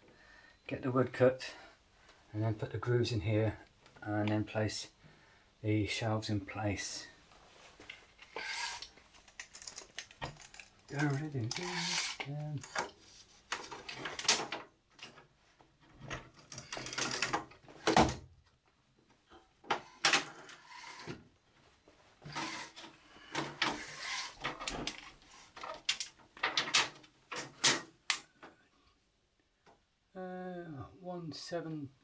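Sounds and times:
tape blade scraping: 0:08.2 - 0:08.9, 0:11.5 - 0:12.3, 0:22.2 - 0:22.8, 0:23.7 - 0:24.4.

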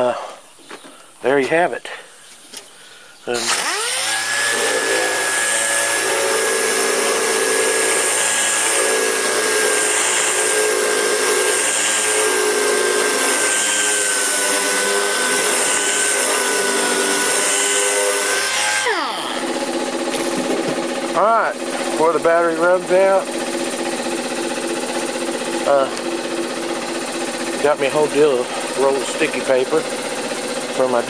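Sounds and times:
electric motor whining: 0:03.4 - 0:31.0.

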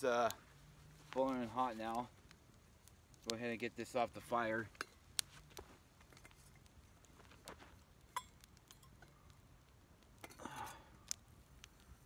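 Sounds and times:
faint clicks and clinks: 0:08.1 - 0:09.3.

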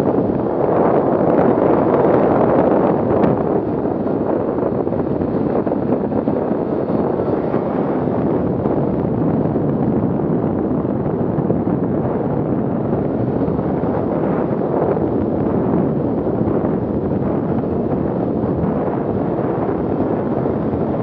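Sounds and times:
snowmobile riding at speed: 0:00.0 - 0:21.0
wind on microphone: 0:00.0 - 0:21.0.

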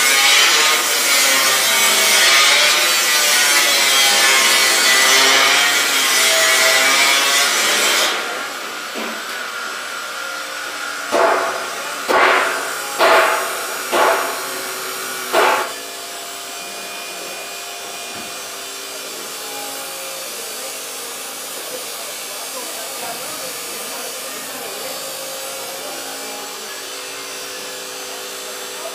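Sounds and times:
power tool abrasive rubbing: 0:00.0 - 0:09.0, 0:11.2 - 0:18.4.

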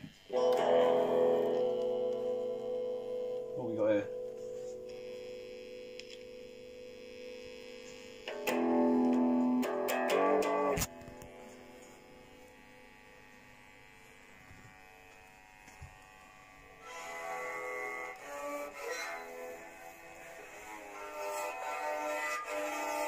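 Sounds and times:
guitar chords strummed: 0:00.3 - 0:06.6, 0:08.2 - 0:12.1.

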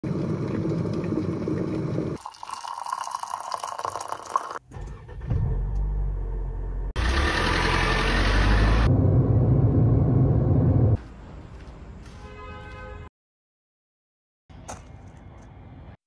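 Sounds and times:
electric kettle boiling: 0:00.1 - 0:04.6
water pouring into a mug: 0:00.1 - 0:04.6
car engine rumbling: 0:04.7 - 0:11.5.

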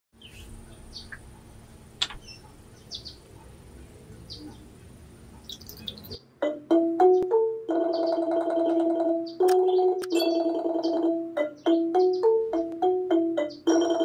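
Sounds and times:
birds chirping: 0:00.2 - 0:12.7
keyboard music: 0:06.4 - 0:14.0.

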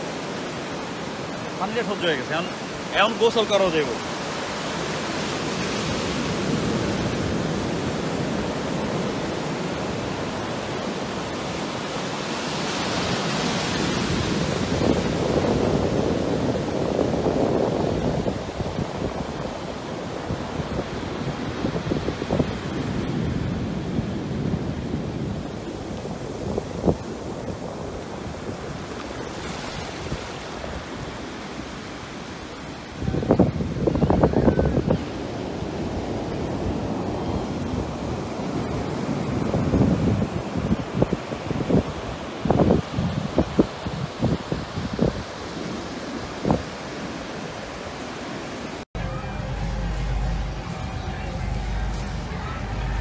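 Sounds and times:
ocean surf breaking on beach: 0:00.0 - 0:53.0
wind buffeting microphone: 0:13.0 - 0:31.2, 0:33.0 - 0:46.8.

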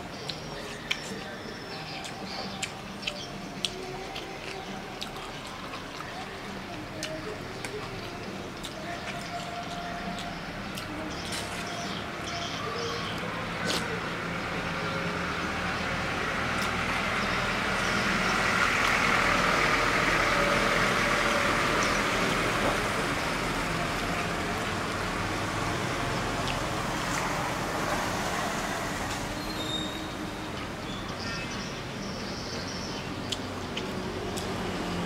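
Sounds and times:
vehicle passing: 0:00.0 - 0:31.2, 0:31.8 - 0:35.0.

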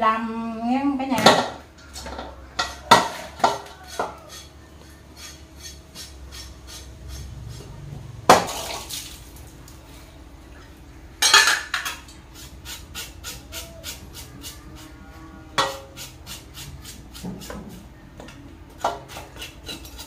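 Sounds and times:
metal utensils knocking on steel basin: 0:01.2 - 0:04.2.

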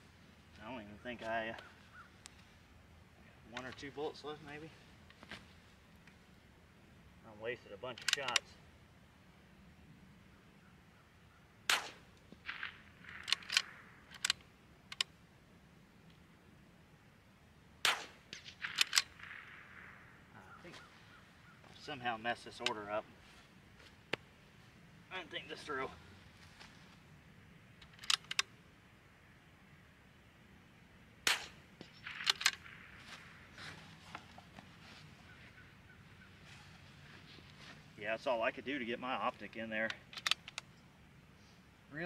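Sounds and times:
rifle bolt clicking: 0:08.0 - 0:08.5, 0:11.7 - 0:15.1, 0:18.3 - 0:19.4, 0:27.8 - 0:28.5, 0:31.3 - 0:32.7, 0:39.9 - 0:40.7
rifle gunshot: 0:11.6 - 0:13.9, 0:17.8 - 0:20.2, 0:31.2 - 0:33.4.

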